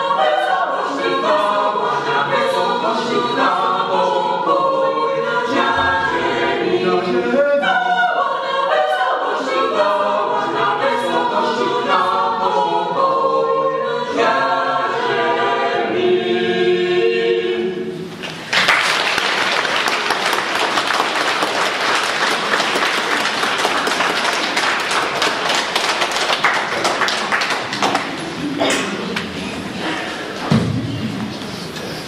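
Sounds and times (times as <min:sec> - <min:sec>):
mixed choir singing unaccompanied: 0:00.0 - 0:18.1
audience applause: 0:18.2 - 0:28.4.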